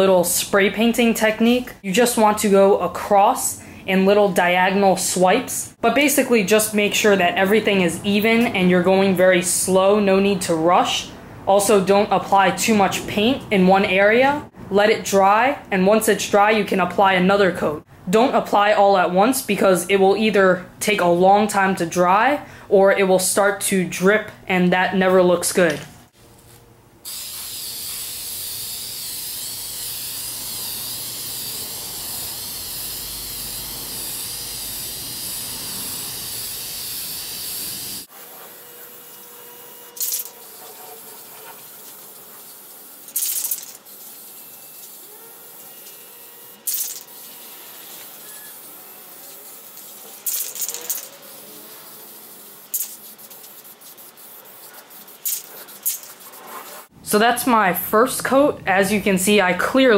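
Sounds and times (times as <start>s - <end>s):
spray paint can hissing: 27.1s - 38.1s, 40.0s - 45.2s, 46.6s - 56.9s.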